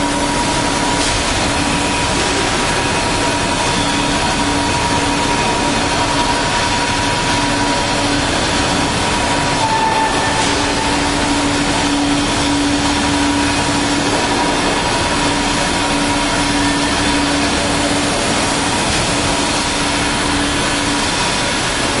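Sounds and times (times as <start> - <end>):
drilling machine droning hum: 0.0 - 22.0.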